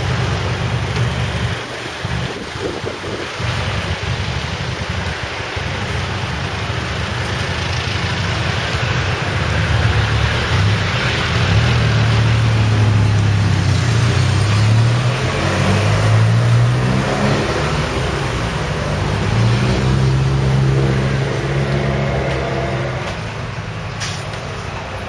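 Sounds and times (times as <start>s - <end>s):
road traffic: 0.0s - 25.0s
vehicle engine humming: 0.0s - 25.0s.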